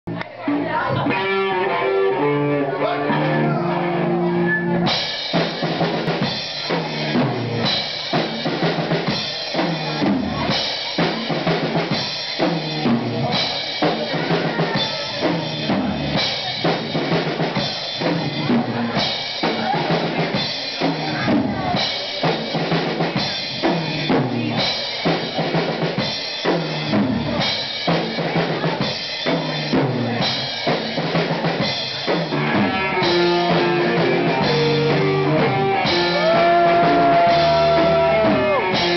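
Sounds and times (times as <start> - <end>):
electric guitar: 0.1 - 5.4, 31.6 - 38.9
drum kit beat: 0.1 - 38.9
live band playing funky rock: 0.1 - 38.9.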